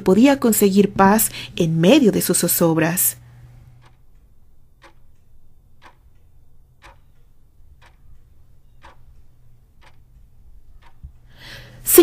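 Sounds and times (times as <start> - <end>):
low steady hum: 0.0 - 12.0
sharp ticking: 3.7 - 11.4.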